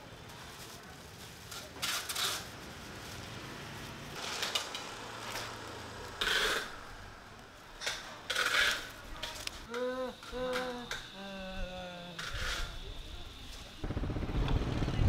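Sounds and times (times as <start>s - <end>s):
plastic bags rustling: 0.1s - 5.6s.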